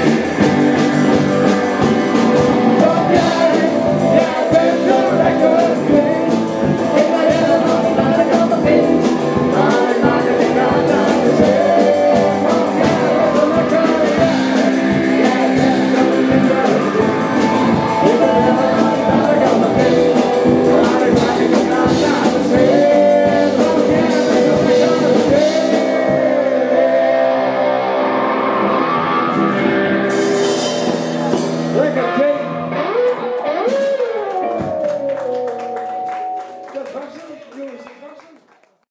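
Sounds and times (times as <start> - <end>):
person singing: 0.0 - 35.0
electric guitars: 0.0 - 37.1
drums: 0.0 - 37.2.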